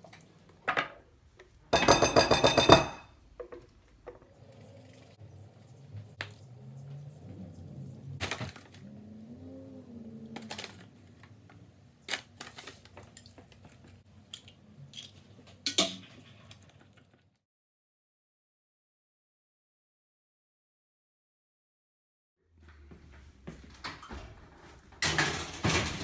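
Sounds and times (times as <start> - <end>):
jars and spoon clinking on counter: 1.7 - 3.6.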